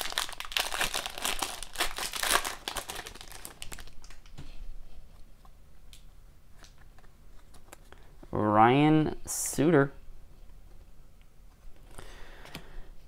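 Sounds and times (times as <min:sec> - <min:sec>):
foil wrapper crinkling and tearing: 0:00.0 - 0:04.3.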